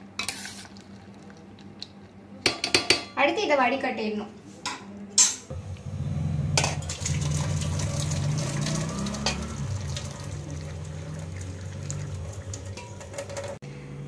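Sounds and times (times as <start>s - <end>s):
water and pasta splashing into sink: 6.8s - 13.6s.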